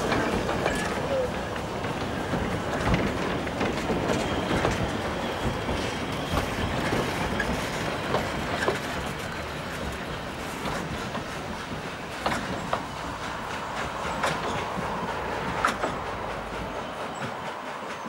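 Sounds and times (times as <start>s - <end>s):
train rumble: 0.0s - 18.0s
train wheels clicking over rail joints: 0.0s - 18.0s
high wheel squeals: 3.8s - 7.9s.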